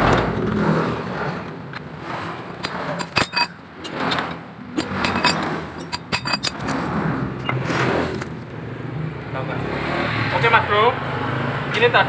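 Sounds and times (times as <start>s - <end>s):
metal parts clinking: 2.6s - 6.8s.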